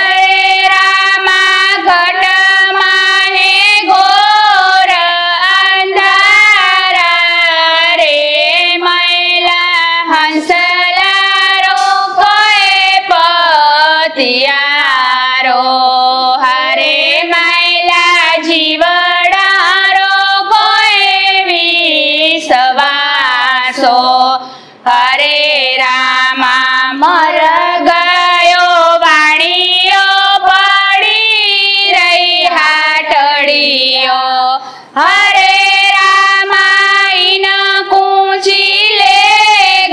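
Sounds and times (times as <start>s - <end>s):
women singing together: 0.0s - 39.9s.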